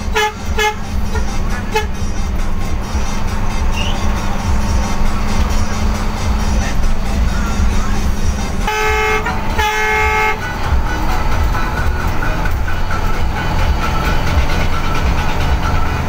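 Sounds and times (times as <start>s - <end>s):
vehicle horn blasts: 0.0s - 2.2s, 8.5s - 10.6s
diesel bus engine drone: 0.0s - 16.0s.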